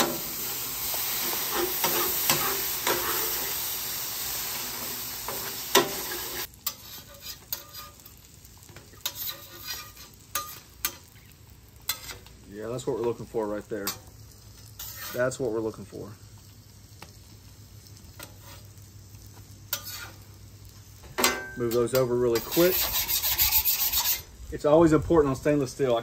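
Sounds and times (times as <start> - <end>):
water sizzling on hot griddle: 0.0 - 26.0
metal spatula scraping steel: 0.9 - 3.7, 4.5 - 8.2, 9.0 - 11.1, 11.8 - 12.3, 13.8 - 15.4, 18.2 - 18.7, 19.7 - 20.2, 21.2 - 24.3.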